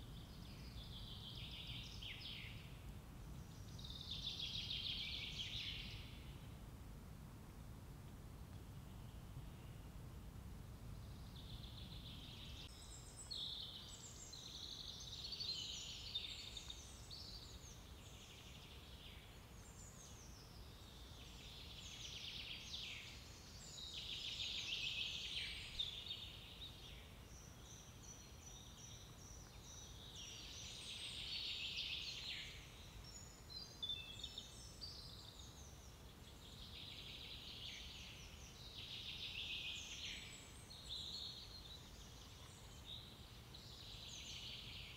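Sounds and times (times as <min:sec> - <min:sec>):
songbirds singing: 0:00.0 - 0:06.6, 0:10.8 - 0:44.9
faint low rumble: 0:00.0 - 0:14.0.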